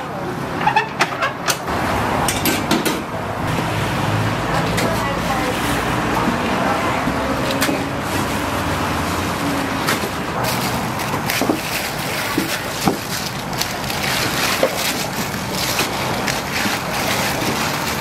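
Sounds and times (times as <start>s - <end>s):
traffic hum: 0.0s - 18.0s
plastic bags crinkling: 6.8s - 18.0s.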